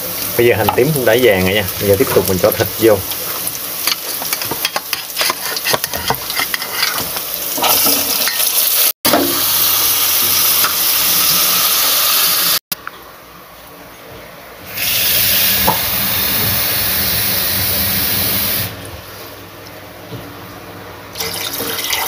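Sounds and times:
bones sizzling in hot oil: 0.0 - 12.6, 14.7 - 18.8.

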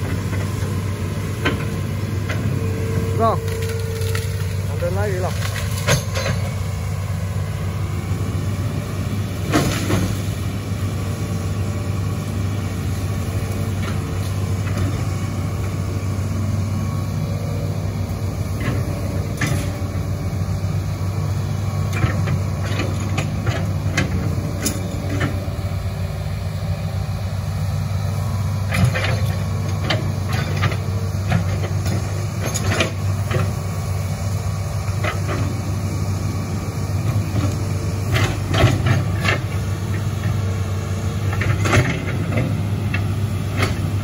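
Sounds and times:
excavator diesel engine running: 0.0 - 44.0.

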